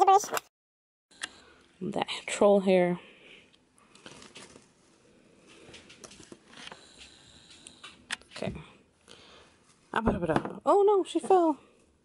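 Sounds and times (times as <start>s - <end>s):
clicks and rustles of handling: 3.9s - 4.7s, 5.4s - 8.5s.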